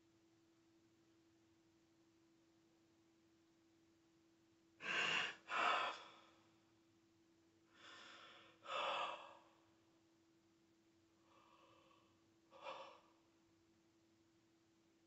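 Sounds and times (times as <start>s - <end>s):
man gasping crying breaths: 4.8s - 6.3s.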